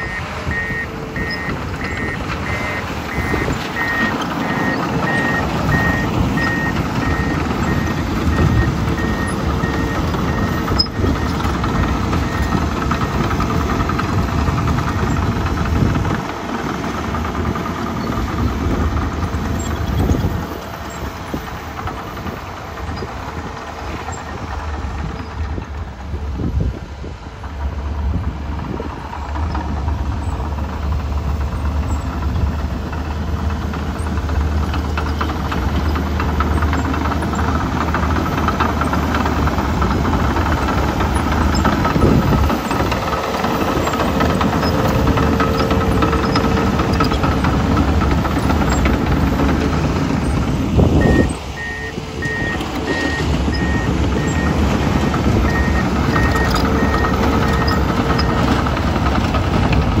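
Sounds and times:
back-up alarm beeping: 0.0 - 13.4, 51.0 - 58.7
bulldozer diesel engine running: 0.0 - 60.0.

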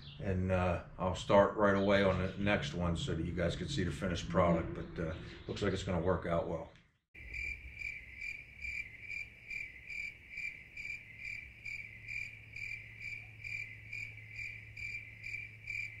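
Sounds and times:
crickets chirping: 7.2 - 16.0.

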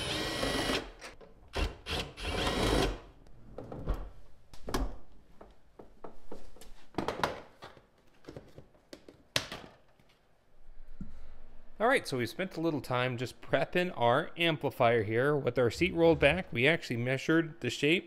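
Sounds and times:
cordless drill whine: 0.0 - 1.0, 1.6 - 3.0.

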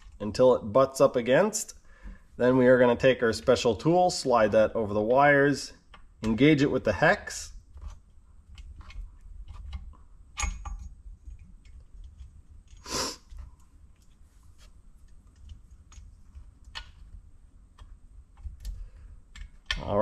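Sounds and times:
short hiss: 12.8 - 13.3.

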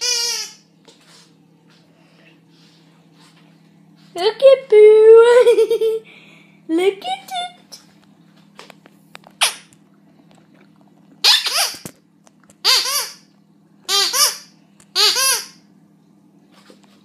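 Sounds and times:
squeaky dog toy squeaking: 0.0 - 0.6, 11.2 - 11.9, 12.6 - 13.3, 13.9 - 15.6.

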